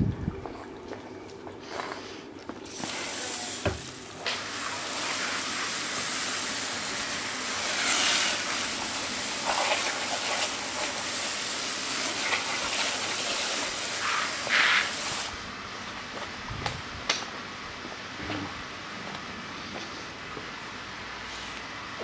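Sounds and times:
hose nozzle spraying water: 0:02.6 - 0:15.4.

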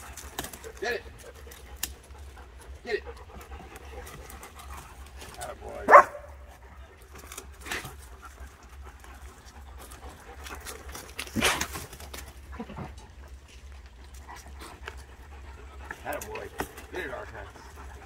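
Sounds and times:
sapling rustling and snapping: 0:00.0 - 0:02.2, 0:07.0 - 0:12.8
dog panting: 0:00.0 - 0:18.0.

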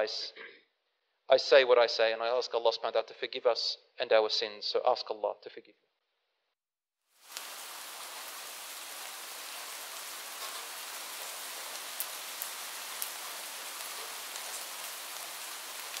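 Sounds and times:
steady rain: 0:07.1 - 0:16.0
raindrop ticks: 0:07.3 - 0:16.0.

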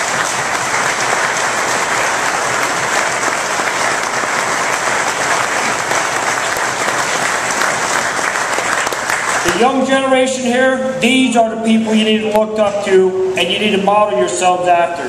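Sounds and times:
audience applauding: 0:00.0 - 0:09.9.

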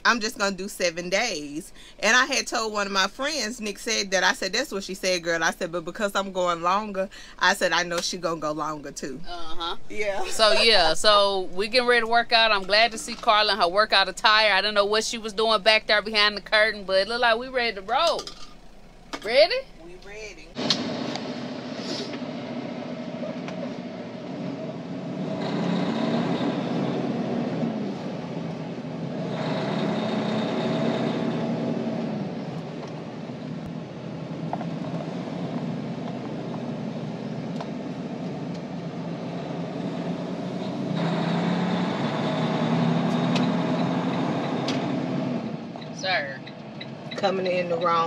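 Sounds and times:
truck diesel engine revving: 0:20.6 - 0:48.0.

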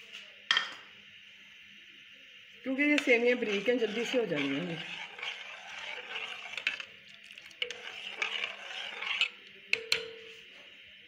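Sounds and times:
spoon stirring in a pot: 0:02.8 - 0:10.4
metal clinking against pot: 0:07.4 - 0:10.2.

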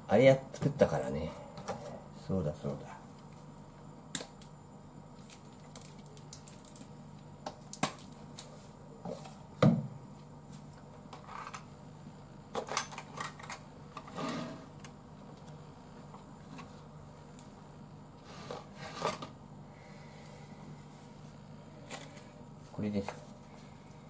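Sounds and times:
low steady hum: 0:00.0 - 0:24.0
thump on counter: 0:09.6 - 0:09.9.

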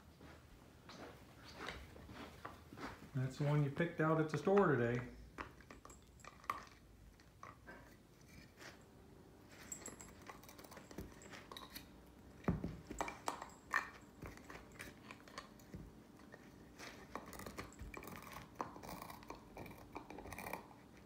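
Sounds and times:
dog gnawing on antler: 0:04.4 - 0:08.8, 0:09.7 - 0:21.0.

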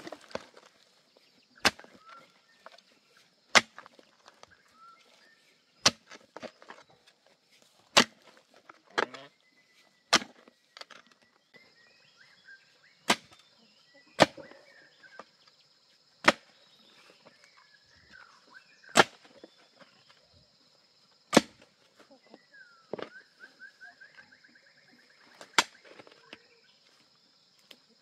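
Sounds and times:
hoe chopping into dry soil: 0:01.5 - 0:05.0, 0:05.8 - 0:06.9, 0:07.8 - 0:09.2, 0:10.1 - 0:11.0, 0:13.0 - 0:13.5, 0:14.2 - 0:14.5, 0:16.2 - 0:16.6, 0:18.9 - 0:19.5, 0:21.3 - 0:21.8, 0:25.4 - 0:26.2.

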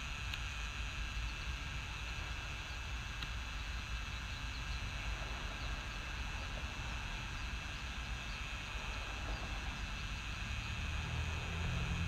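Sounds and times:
high-pitched hum: 0:00.0 - 0:12.0
faint bird chirps: 0:04.0 - 0:08.6.

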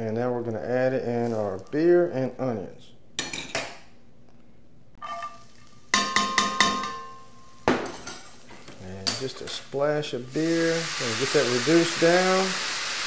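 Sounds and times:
metal bowl clanking on skillet: 0:05.0 - 0:08.4.

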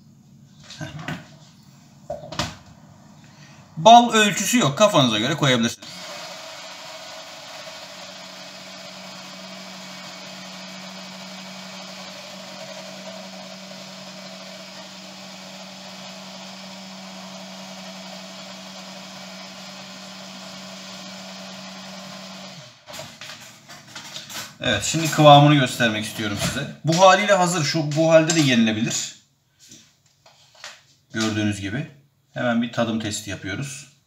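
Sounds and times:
electric chopper motor humming: 0:05.8 - 0:23.0.

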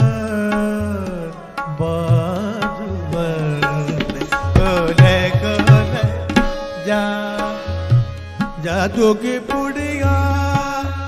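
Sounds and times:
man singing long notes: 0:00.0 - 0:07.9
tabla playing rhythm: 0:00.0 - 0:11.0.

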